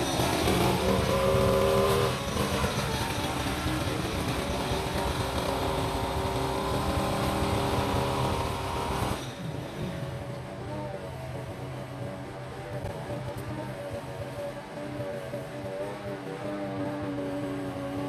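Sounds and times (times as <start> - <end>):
brush cutter engine running: 0.0 - 10.4.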